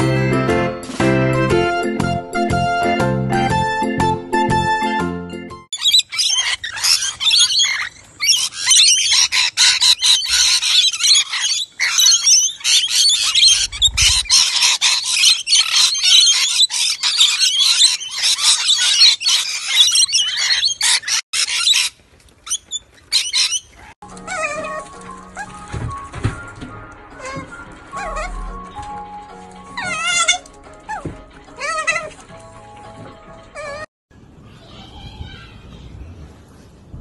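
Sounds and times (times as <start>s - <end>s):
parrots screeching and chattering: 5.8s - 25.7s, 27.1s - 28.7s, 29.7s - 32.2s.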